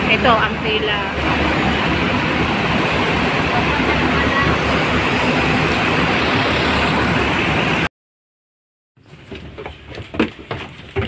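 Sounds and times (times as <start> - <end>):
buses idling: 0.0 - 7.9
traffic noise: 0.0 - 7.9.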